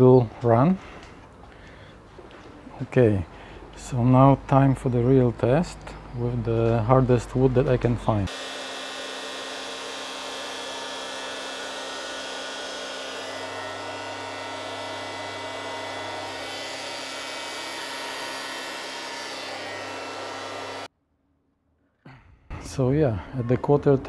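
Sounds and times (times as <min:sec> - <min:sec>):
planer cutting wooden board: 0:08.3 - 0:20.9
thickness planer running: 0:08.3 - 0:20.9.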